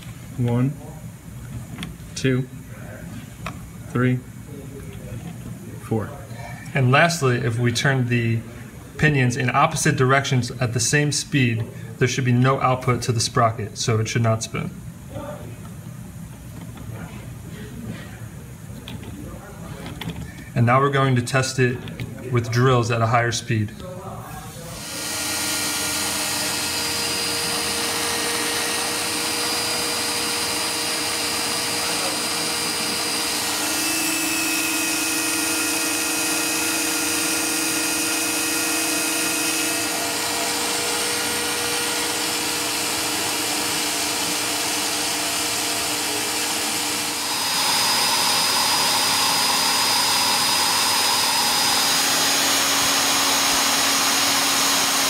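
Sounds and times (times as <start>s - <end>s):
electric drill motor whine: 24.6s - 55.0s.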